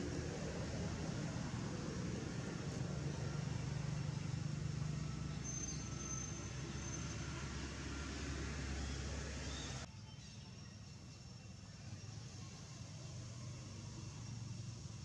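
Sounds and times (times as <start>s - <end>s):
low outdoor rumble: 0.0s - 9.9s.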